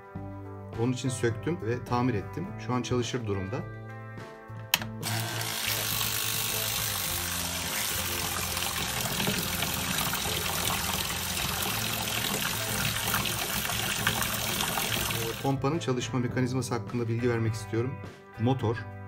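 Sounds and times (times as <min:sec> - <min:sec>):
spray pump running: 0:05.0 - 0:15.4
water splashing into a tub: 0:07.7 - 0:15.4.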